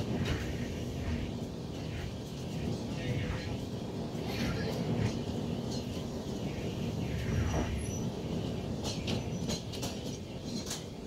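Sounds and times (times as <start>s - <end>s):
train wheels rumbling on track: 0.0s - 11.0s
wheels clicking over rail joints: 7.7s - 11.0s.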